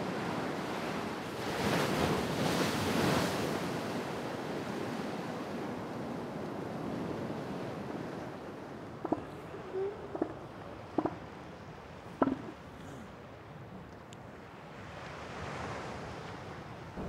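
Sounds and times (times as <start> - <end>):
ocean surf breaking on rocks: 0.0 - 13.0.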